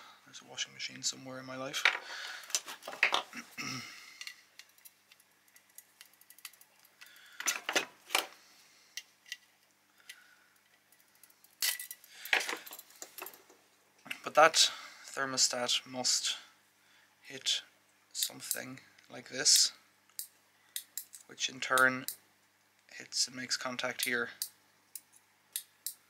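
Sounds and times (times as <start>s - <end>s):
small metal parts clinking: 4.2s - 7.8s, 10.6s - 13.4s.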